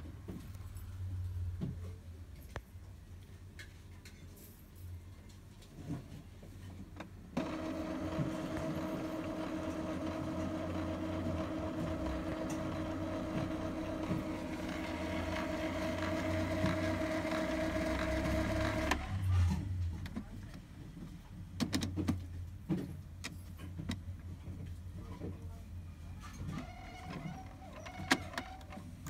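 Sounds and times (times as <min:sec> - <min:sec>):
printer motor humming: 0:07.4 - 0:19.2.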